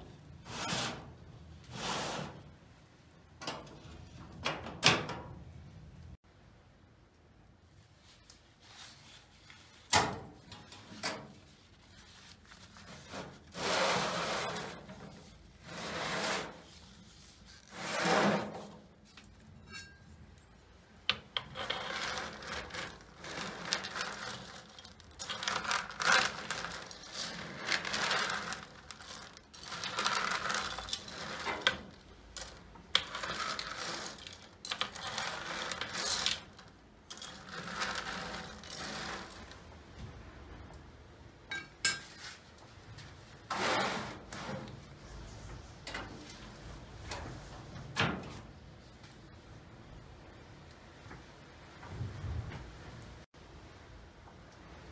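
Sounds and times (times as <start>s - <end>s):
metal utensil scraping tray: 17.6s - 18.8s
nuts rattling on metal tray: 21.4s - 39.5s.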